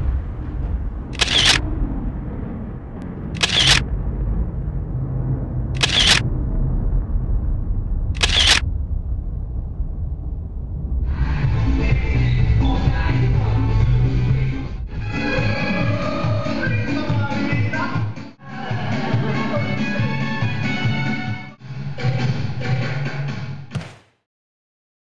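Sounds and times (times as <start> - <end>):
steady low rumble: 0.0 - 19.4
camera shutter clicks: 1.2 - 1.6, 3.4 - 3.8, 5.8 - 6.2, 8.2 - 8.6.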